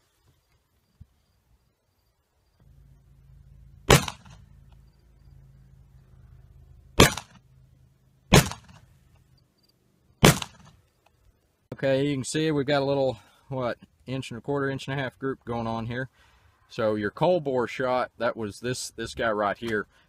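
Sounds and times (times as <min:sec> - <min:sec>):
revolver shots with echo: 0:03.9 - 0:04.4, 0:07.0 - 0:07.4, 0:08.3 - 0:08.8.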